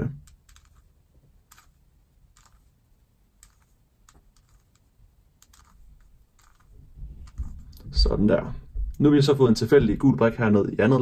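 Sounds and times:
plastic puzzle cube clicking: 0:00.0 - 0:07.8.

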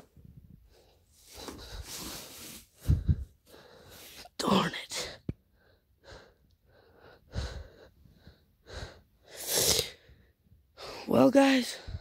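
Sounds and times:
person breathing heavily: 0:00.6 - 0:04.3, 0:05.5 - 0:11.1.

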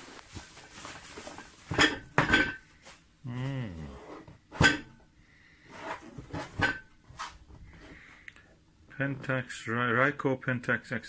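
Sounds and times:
bubble wrap unwrapping: 0:00.0 - 0:01.7
man humming low: 0:03.2 - 0:04.2.

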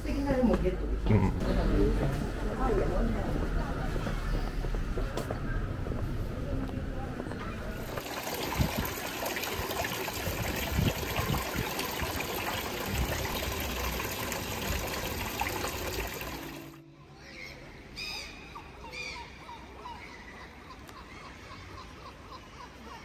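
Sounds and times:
fountain water trickling: 0:07.8 - 0:16.8.

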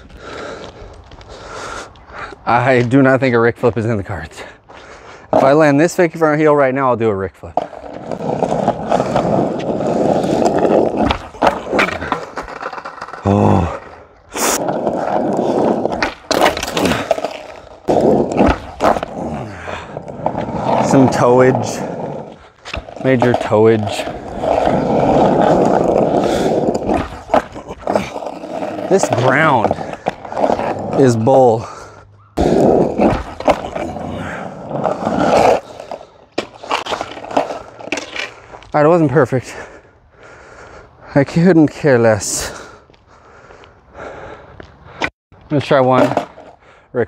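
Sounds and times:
skateboard wheels rolling on asphalt: 0:00.0 - 0:46.9
skateboard clacking on ground: 0:07.5 - 0:19.2, 0:45.0 - 0:46.6.

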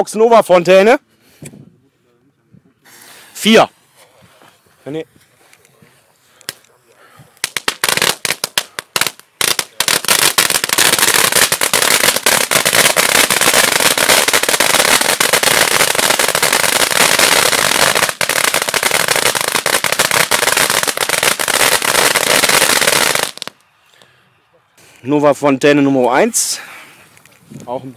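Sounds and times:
firework fountain crackling: 0:07.4 - 0:23.6.

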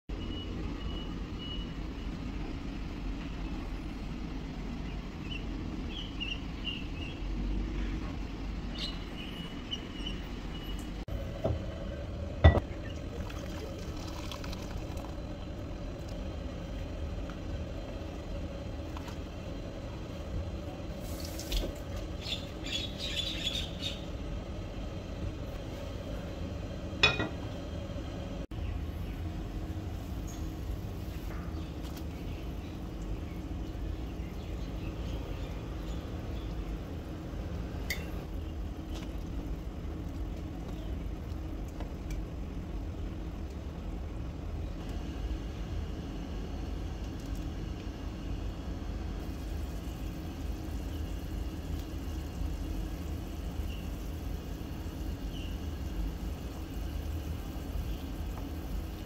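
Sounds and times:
steady low hum: 0:00.1 - 0:59.0
water poured from a kettle: 0:13.1 - 0:15.2.

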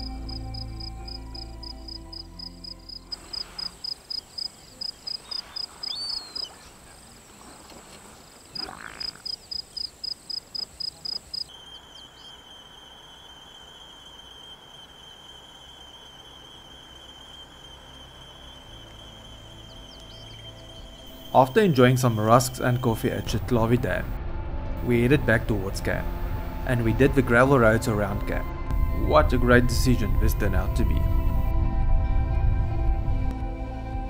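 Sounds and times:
frogs calling in rapid pulses: 0:02.9 - 0:06.6, 0:08.4 - 0:21.5.

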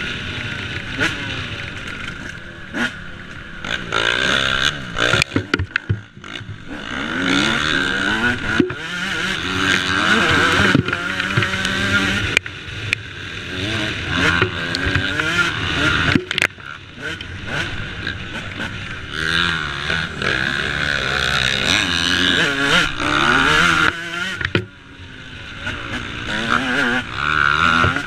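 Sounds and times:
motocross engine revving: 0:00.0 - 0:28.0
sharp knocks: 0:05.1 - 0:06.6.

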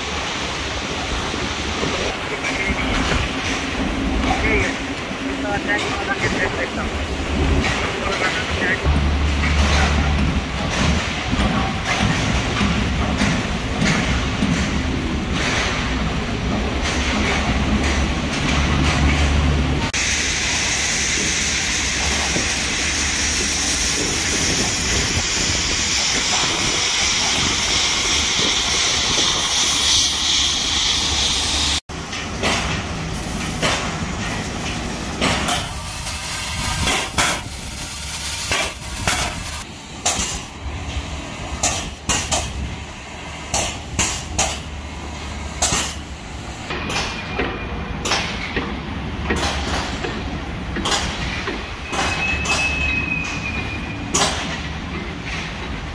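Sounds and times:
knocks and clanks on a hull: 0:08.8 - 0:19.3.

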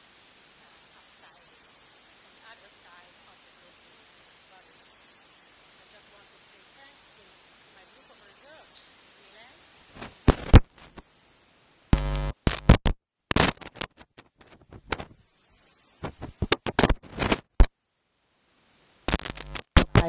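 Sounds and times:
microphone crackles and pops: 0:09.9 - 0:11.1, 0:11.9 - 0:15.3, 0:16.0 - 0:17.8, 0:19.1 - 0:20.0
short electrical buzz: 0:11.9 - 0:13.9, 0:19.1 - 0:20.0.

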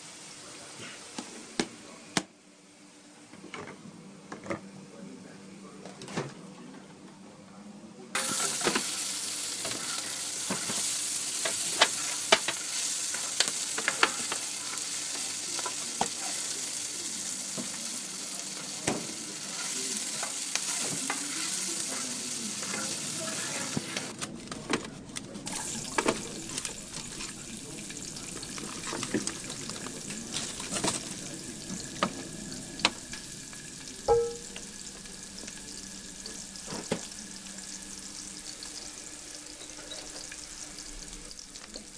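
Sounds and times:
onions sizzling in hot oil: 0:08.2 - 0:24.1, 0:25.5 - 0:41.9.

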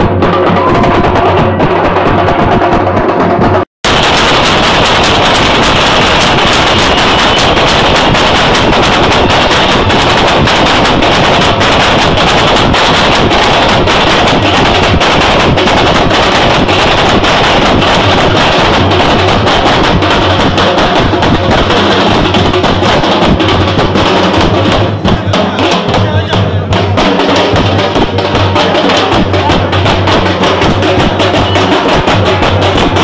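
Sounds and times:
fast drumming: 0:00.0 - 0:33.0.

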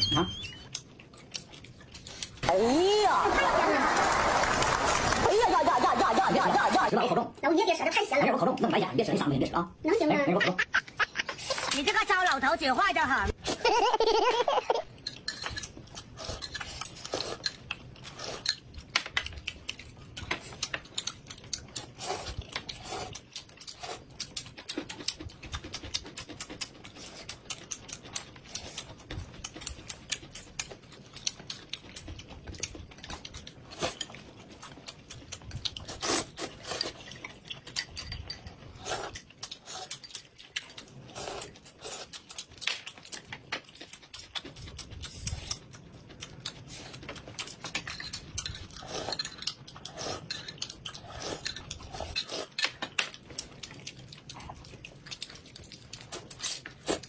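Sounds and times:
chewing and slurping: 0:00.0 - 0:02.5, 0:14.9 - 0:57.0.

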